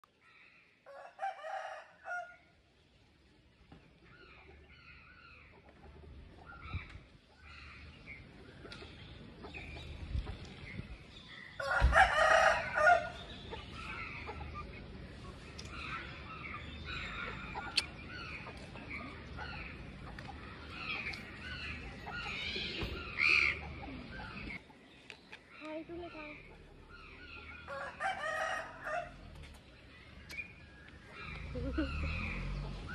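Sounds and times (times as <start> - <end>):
birds chirping and calling: 0.0 - 32.9
rooster crowing: 0.9 - 2.4, 11.6 - 13.2, 27.7 - 29.2.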